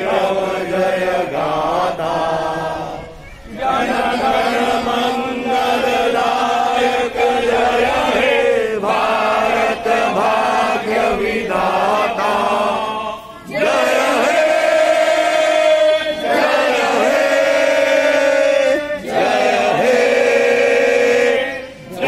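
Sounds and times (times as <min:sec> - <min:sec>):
adults and children singing: 0:00.0 - 0:22.0.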